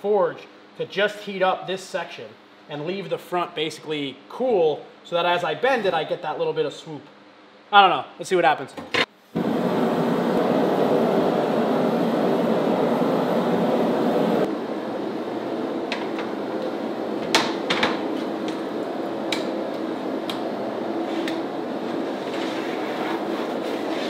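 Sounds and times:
steady hum: 0:09.1 - 0:24.0
gas forge rushing: 0:09.3 - 0:24.0.

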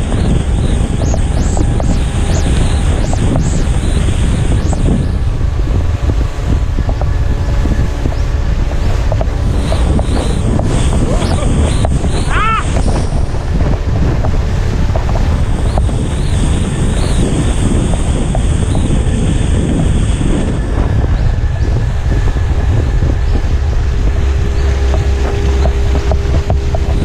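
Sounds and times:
boat wake rushing: 0:00.0 - 0:27.0
wind buffeting microphone: 0:00.0 - 0:27.0.

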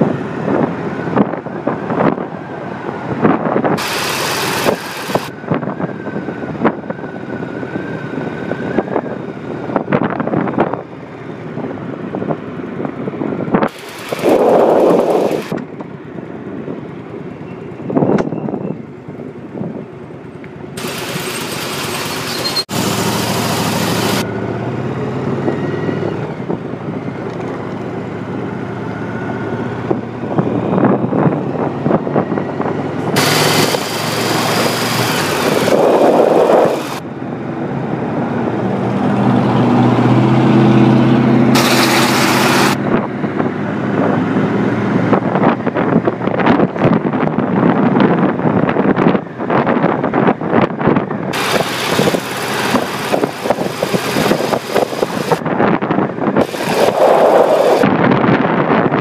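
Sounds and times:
wind buffeting microphone: 0:00.0 - 0:17.0, 0:28.9 - 0:59.0
motorcycle engine running: 0:03.8 - 0:05.4, 0:13.4 - 0:16.1, 0:20.7 - 0:25.4, 0:33.2 - 0:37.0, 0:41.6 - 0:42.9, 0:51.4 - 0:55.4.

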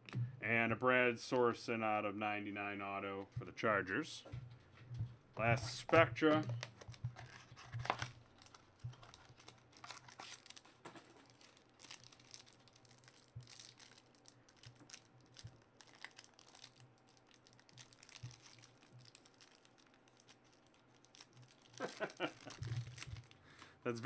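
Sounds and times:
card pack crinkling: 0:06.2 - 0:24.0.

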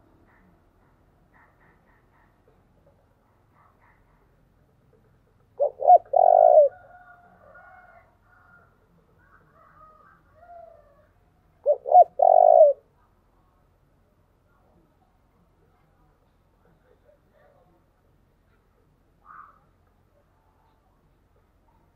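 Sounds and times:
dove cooing: 0:05.0 - 0:07.3, 0:09.2 - 0:12.9
birds chirping: 0:05.5 - 0:06.7, 0:11.6 - 0:12.8.

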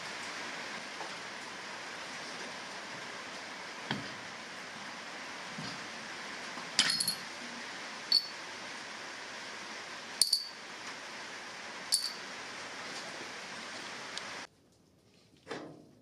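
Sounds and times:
steady hiss: 0:00.0 - 0:14.5
metal clinks on anvil: 0:06.8 - 0:07.2, 0:08.1 - 0:08.3, 0:10.2 - 0:10.6, 0:11.9 - 0:12.2.

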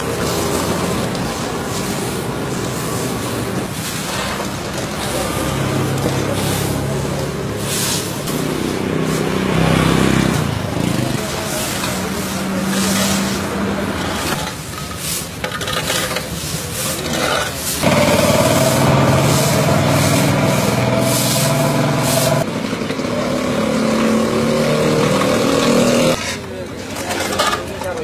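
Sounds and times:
brooms scraping on pavement: 0:00.0 - 0:28.0
vehicle engine running: 0:17.8 - 0:26.2.

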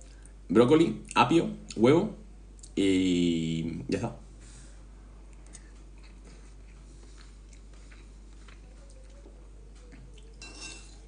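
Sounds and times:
person chewing: 0:05.3 - 0:10.5.

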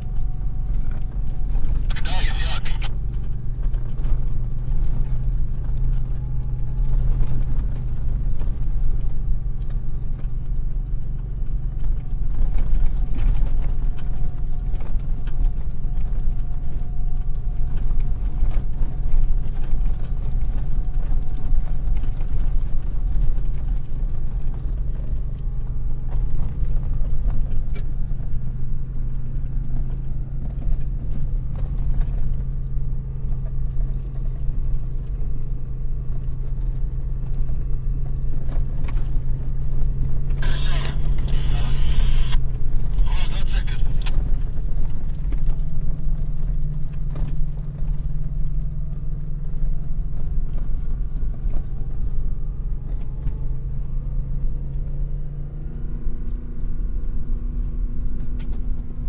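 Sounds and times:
low engine drone: 0:00.0 - 0:09.2, 0:37.6 - 0:45.6.

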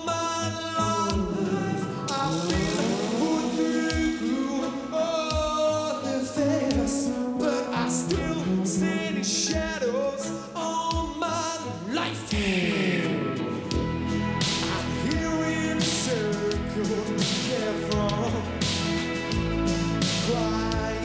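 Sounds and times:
man singing long notes: 0:00.0 - 0:13.9, 0:14.6 - 0:18.6
live band music: 0:00.0 - 0:21.0
drum beat: 0:01.1 - 0:04.6, 0:05.3 - 0:05.7, 0:06.7 - 0:07.1, 0:09.5 - 0:09.8, 0:10.9 - 0:11.3, 0:12.3 - 0:21.0
cymbal crash: 0:01.4 - 0:05.0.

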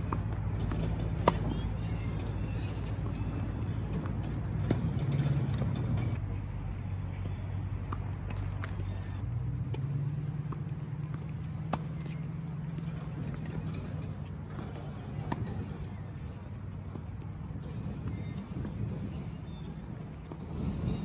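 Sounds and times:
tennis racquet hits: 0:00.0 - 0:06.2, 0:10.5 - 0:16.0
low engine hum: 0:00.0 - 0:21.0.

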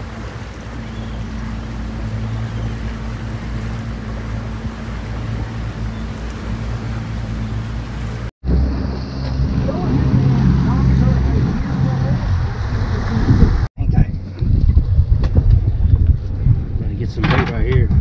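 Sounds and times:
boat engine humming: 0:00.0 - 0:13.7
wind and water rushing: 0:00.0 - 0:18.0.

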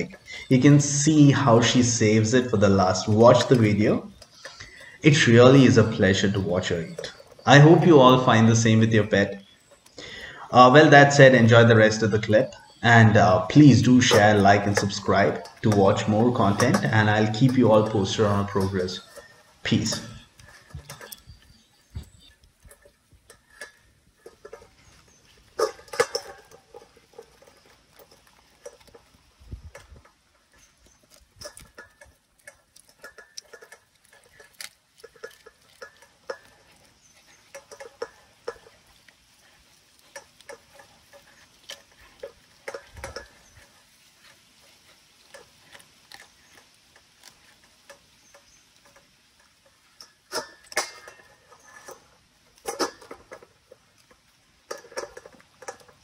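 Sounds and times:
teeth clicking on steel bowl: 0:14.1 - 0:56.0.

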